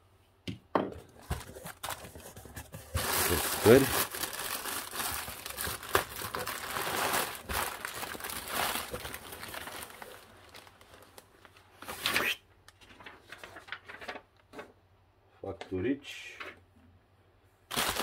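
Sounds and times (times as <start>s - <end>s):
plastic packing crinkling: 1.1s - 12.2s, 12.8s - 14.3s, 17.7s - 18.0s.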